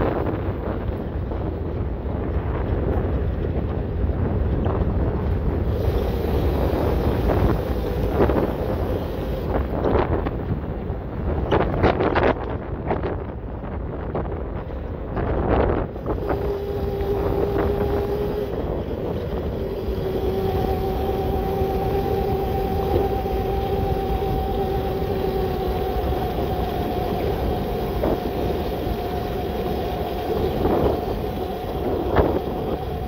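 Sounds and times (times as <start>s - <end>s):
wind rumble on microphone: 0.0s - 33.0s
electric motor whining: 5.6s - 10.5s, 16.0s - 33.0s.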